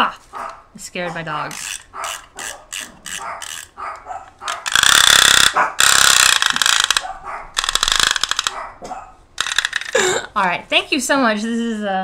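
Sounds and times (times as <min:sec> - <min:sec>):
dog barking: 0:00.3 - 0:01.2, 0:01.9 - 0:04.7, 0:05.5 - 0:05.8, 0:07.0 - 0:07.6, 0:08.5 - 0:09.2
chattering teeth toy clacking: 0:01.4 - 0:08.6, 0:09.4 - 0:10.2.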